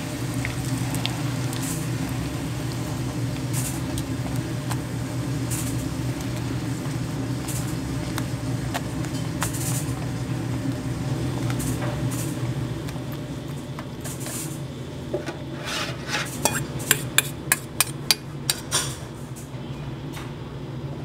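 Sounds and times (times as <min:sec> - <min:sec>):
steady low hum: 0:00.0 - 0:19.5
metal spoon scraping sauce: 0:15.5 - 0:18.6
spoon clinking on pan: 0:16.4 - 0:18.2.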